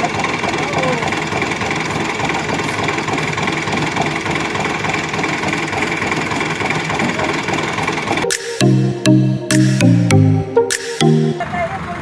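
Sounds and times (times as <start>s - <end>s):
tractor diesel engine idling: 0.0s - 8.2s, 11.4s - 12.0s.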